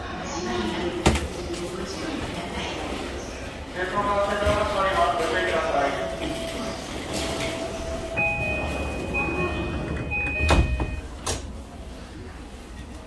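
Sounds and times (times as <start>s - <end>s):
door chime beeping: 7.6s - 11.1s
train doors shutting with a thud: 8.2s - 11.6s.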